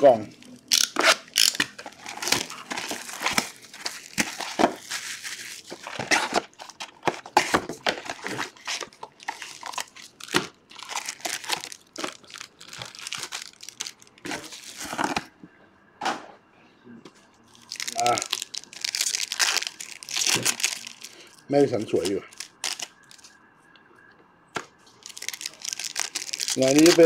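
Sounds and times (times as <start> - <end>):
plastic shrink wrap crinkling: 0.1 - 15.3, 17.5 - 23.3, 24.9 - 27.0.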